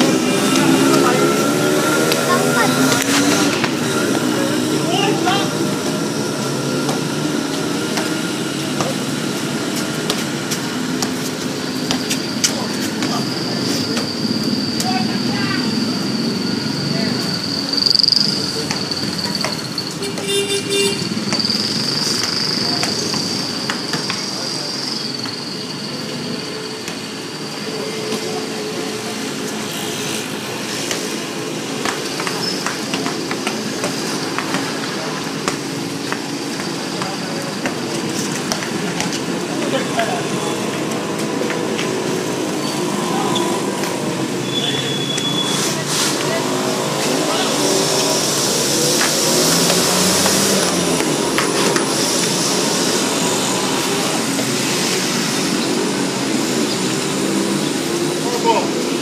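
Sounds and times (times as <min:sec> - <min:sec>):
steady background noise: 0:00.0 - 0:59.0
basketball bouncing on concrete: 0:06.8 - 0:13.1, 0:18.0 - 0:20.4, 0:21.2 - 0:24.3, 0:30.8 - 0:39.8.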